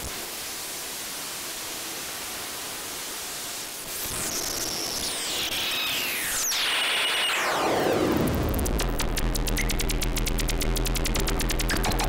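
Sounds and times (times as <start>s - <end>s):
harsh electronic noise sweeping: 5.2s - 12.0s
low buzz: 7.6s - 12.0s
rapid crackling clicks: 8.1s - 12.0s.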